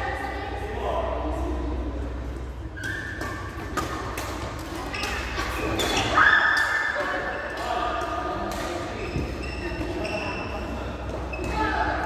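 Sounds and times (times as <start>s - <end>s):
shoes squeaking on floor: 2.6s - 7.6s, 9.0s - 12.0s.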